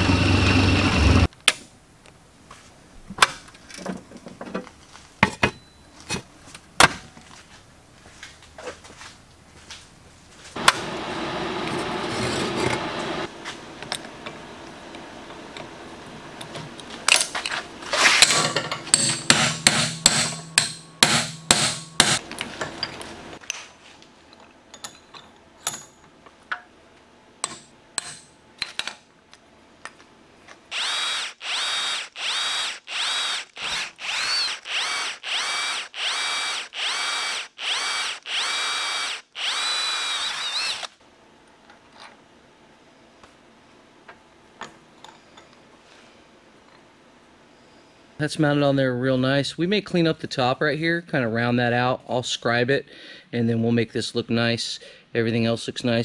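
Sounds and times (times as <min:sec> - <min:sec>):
milling machine cutting metal: 0:30.7 - 0:40.9.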